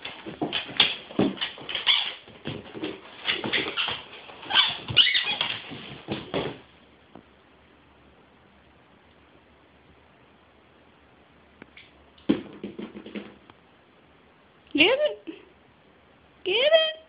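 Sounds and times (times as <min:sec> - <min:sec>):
dog squeaking rubber toy: 0:01.7 - 0:02.2, 0:03.5 - 0:05.6.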